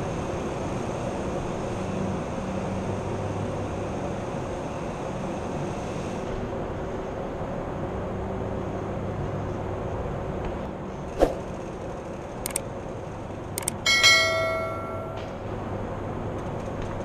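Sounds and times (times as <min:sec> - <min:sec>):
steady hum: 0:00.0 - 0:16.3
quick clicks: 0:12.4 - 0:12.7, 0:13.6 - 0:13.8
bright bell chime: 0:13.9 - 0:15.4.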